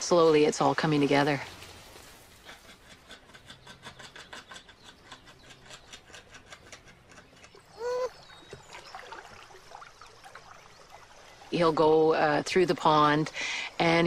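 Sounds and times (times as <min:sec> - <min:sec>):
animal call with falling end: 0:07.7 - 0:08.2.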